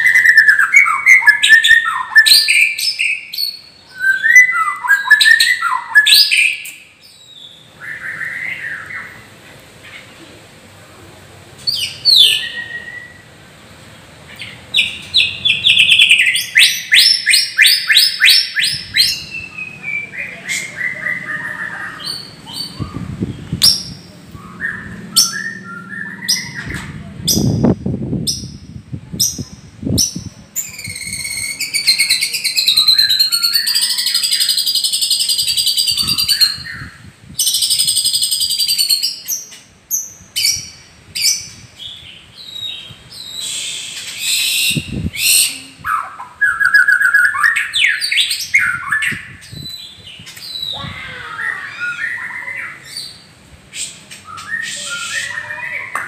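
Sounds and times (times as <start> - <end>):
whistled bird phrases: 0.0 - 9.3, 11.7 - 13.4, 14.4 - 27.7, 28.4 - 39.3, 40.4 - 56.0
bird singing: 0.0 - 10.2, 11.6 - 13.4, 14.3 - 56.0
fast rattling bird trill: 20.6 - 39.3.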